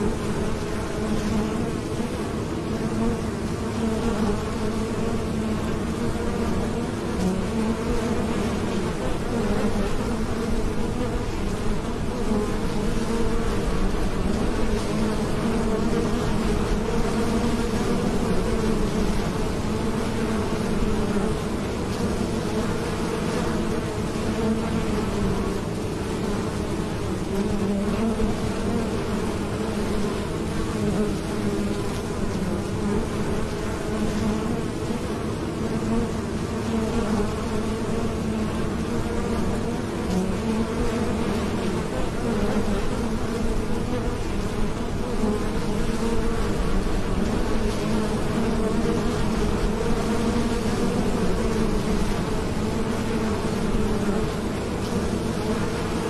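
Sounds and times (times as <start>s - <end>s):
bees buzzing: 0.0s - 56.0s.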